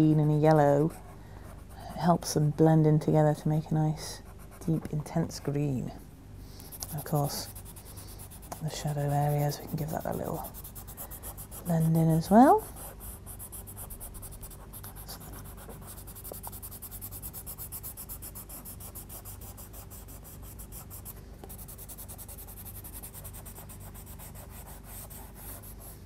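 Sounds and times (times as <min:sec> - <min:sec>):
pencil rubbing on paper: 0:06.7 - 0:26.0.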